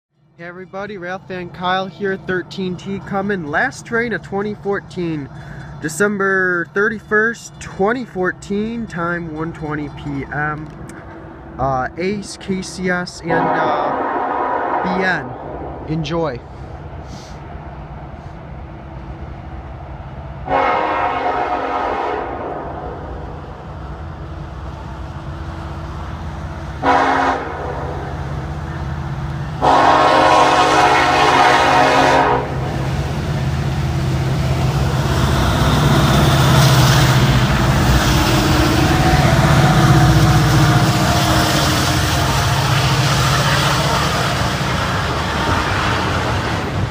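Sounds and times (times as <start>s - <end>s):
train rumbling past: 0.2s - 46.9s
locomotive air horn blasts: 13.3s - 15.1s, 20.4s - 22.6s, 26.8s - 28.0s, 29.6s - 32.7s.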